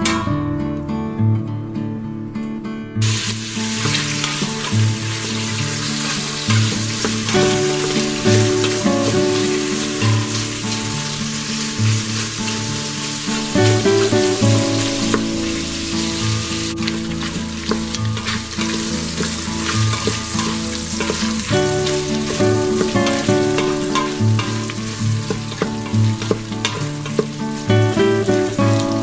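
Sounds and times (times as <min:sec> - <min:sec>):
sausage sizzling in oil: 0:03.0 - 0:29.0
wooden spoon scraping pot: 0:17.6 - 0:27.4.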